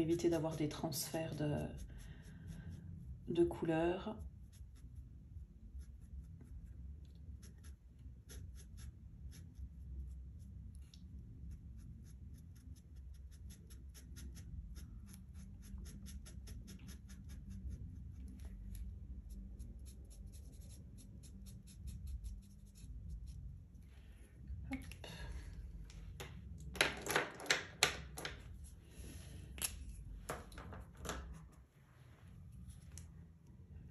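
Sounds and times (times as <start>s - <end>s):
low room hum: 0.0s - 33.9s
marker scratching on paper: 7.4s - 10.5s, 11.5s - 23.4s.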